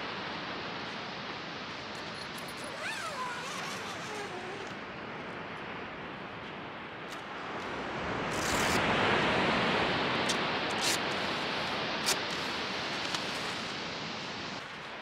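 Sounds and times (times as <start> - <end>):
surf washing onto beach: 7.2 - 15.0.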